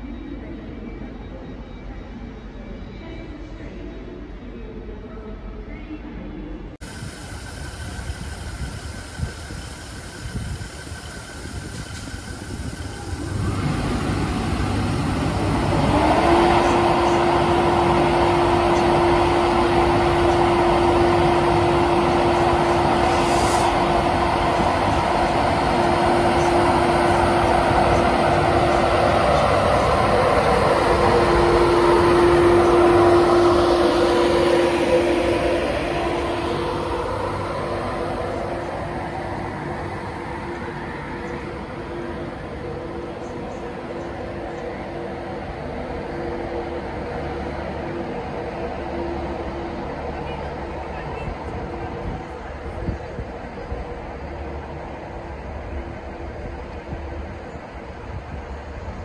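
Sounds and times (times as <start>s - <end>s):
electric locomotive powering up: 6.8s - 59.0s
rising tone: 13.0s - 43.3s.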